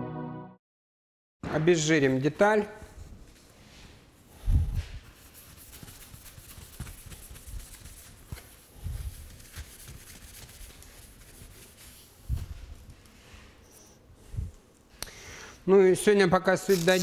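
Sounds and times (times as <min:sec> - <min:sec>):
cloth rubbing strokes: 0:03.2 - 0:14.0.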